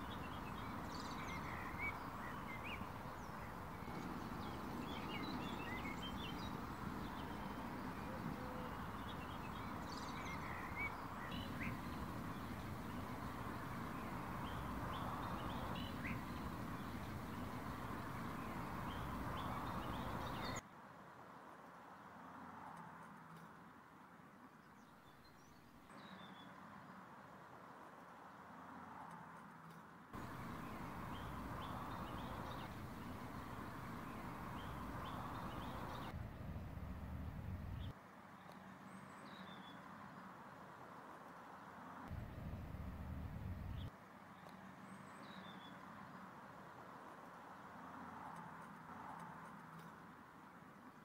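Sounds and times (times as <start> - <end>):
birds chirping: 0.0 - 20.6, 30.2 - 37.9, 42.1 - 43.9
outdoor background hum: 0.0 - 20.6, 30.2 - 38.0, 42.1 - 44.5.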